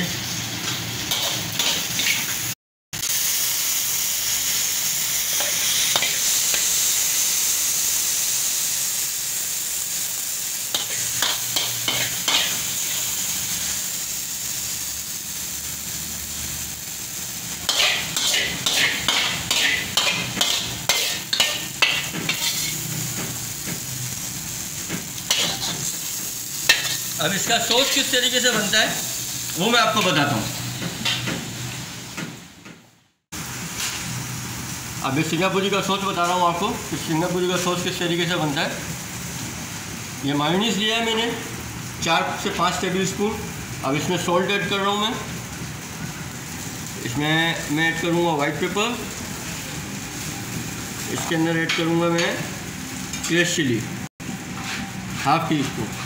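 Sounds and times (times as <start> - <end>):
food sizzling in a wok: 0.0 - 56.0
metal ladle scraping wok: 17.6 - 23.2, 25.3 - 26.0, 54.5 - 56.0.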